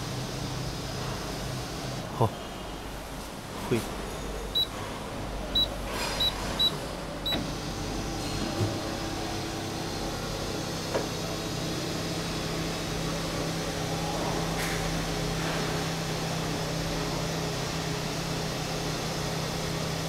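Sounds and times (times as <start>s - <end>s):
short electronic beeps: 5.6s - 7.4s.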